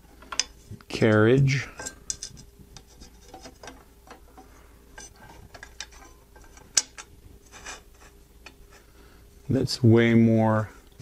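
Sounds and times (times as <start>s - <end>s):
metal parts clicking and tapping: 0.2s - 7.1s.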